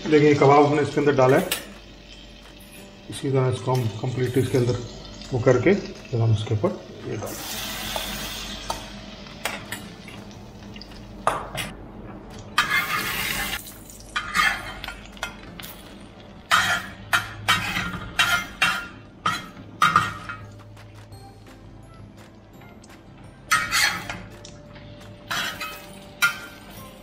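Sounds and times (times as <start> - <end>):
faint sizzle of frying: 0.0 - 27.0
utensils scraping a steel bowl: 12.6 - 13.6, 14.2 - 14.9, 16.5 - 20.4, 23.5 - 24.2.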